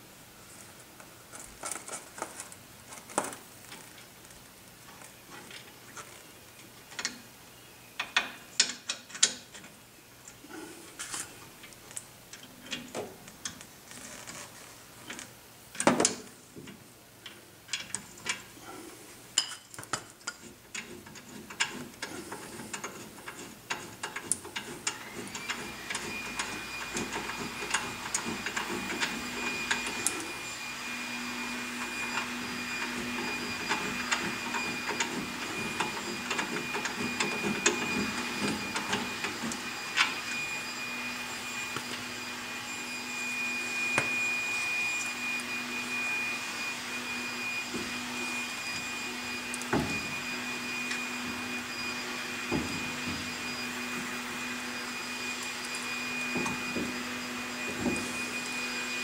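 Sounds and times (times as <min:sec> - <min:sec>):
high-toned hum: 0:25.0 - 0:59.0.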